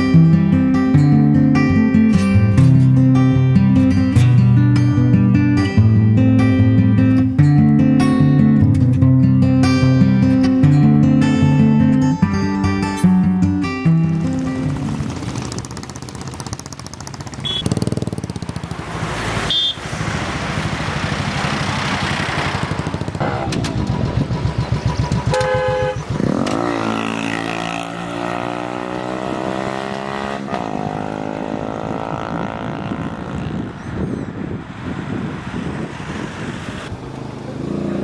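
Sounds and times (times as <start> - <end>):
motorcycle engines running: 13.8 - 36.2, 36.9 - 38.0
motorcycle engine revving: 14.0 - 33.9, 36.9 - 38.0
horn toots: 17.3 - 18.0, 19.4 - 19.9, 23.1 - 23.9, 25.2 - 27.9.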